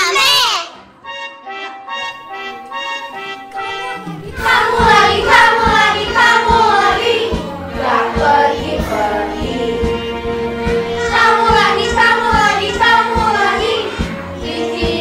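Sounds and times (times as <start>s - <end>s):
instrumental music with steady beat: 1.0s - 15.0s
children singing: 3.6s - 15.0s.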